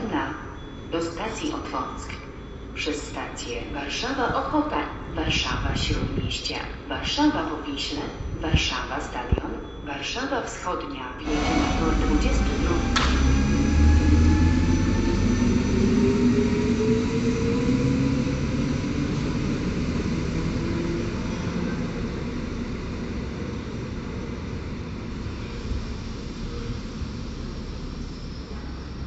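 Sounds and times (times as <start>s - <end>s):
traction motor whine: 11.2s - 29.0s
train wheels rumbling: 11.3s - 29.0s.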